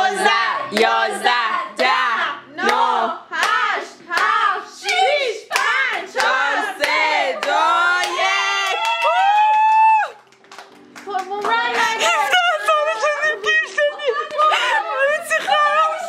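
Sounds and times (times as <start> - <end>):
group singing a birthday song: 0.0 - 8.6
hands clapping in time: 4.9 - 12.1.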